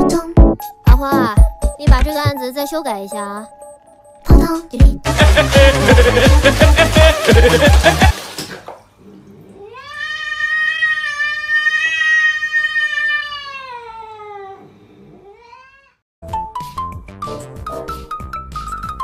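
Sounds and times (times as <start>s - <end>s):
background music: 0.0s - 8.2s, 16.2s - 19.0s
cat yowling: 9.6s - 16.0s.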